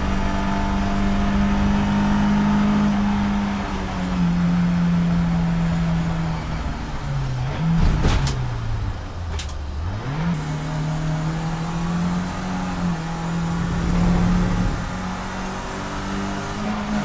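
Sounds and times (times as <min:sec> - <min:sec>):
race car engine: 0:00.0 - 0:17.0.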